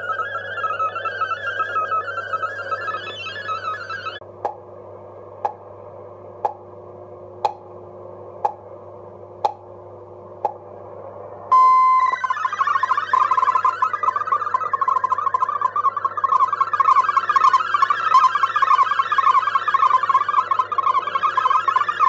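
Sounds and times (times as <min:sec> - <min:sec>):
warbling data tones: 0:00.0 - 0:04.2, 0:11.5 - 0:22.0
faint hum-like tone: 0:00.0 - 0:22.0
loud steady tone: 0:00.0 - 0:22.0.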